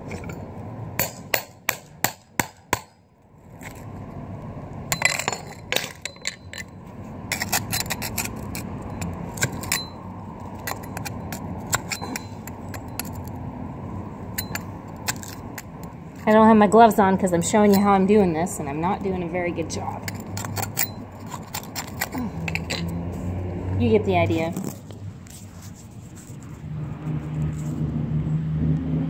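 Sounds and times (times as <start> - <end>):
metal tool scraping concrete: 7.3 - 13.4, 14.4 - 16.6, 19.9 - 23.0.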